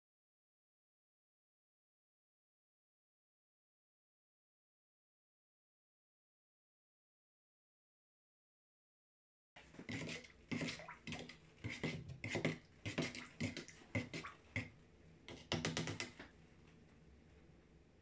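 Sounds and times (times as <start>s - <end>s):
metal tool stirring in plastic jug: 9.6s - 16.3s.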